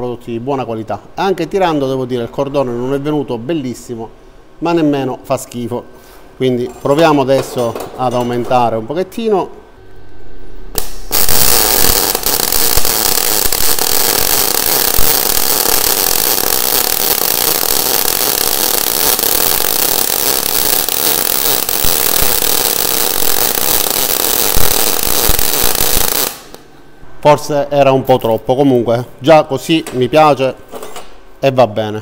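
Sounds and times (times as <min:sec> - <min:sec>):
welding arc sizzling: 0:10.7 - 0:26.7.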